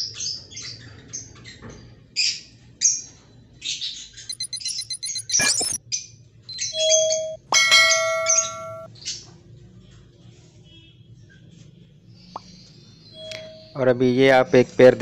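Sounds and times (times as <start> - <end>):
lovebirds chirping: 4.3 - 5.8
ringing bell-like chime: 6.8 - 8.9.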